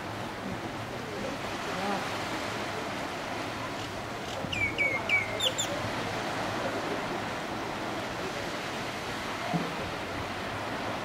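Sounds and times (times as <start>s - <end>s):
surf on a beach: 0.0s - 11.0s
bird calling: 4.5s - 5.8s.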